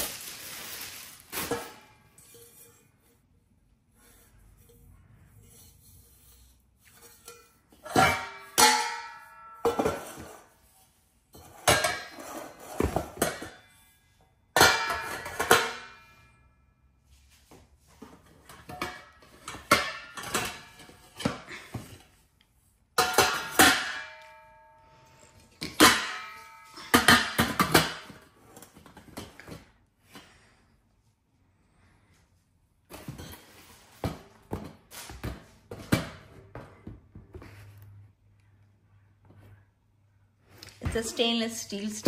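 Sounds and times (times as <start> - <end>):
metal steamer pots clanking: 7.0 - 10.4, 11.4 - 13.6, 14.6 - 15.8, 23.0 - 24.4.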